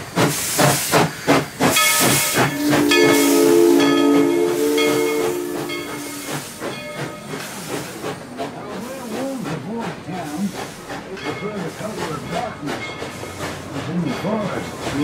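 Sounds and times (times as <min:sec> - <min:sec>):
steam hissing: 0:00.0 - 0:15.0
train running: 0:00.0 - 0:15.0
steam locomotive whistle: 0:01.7 - 0:07.8.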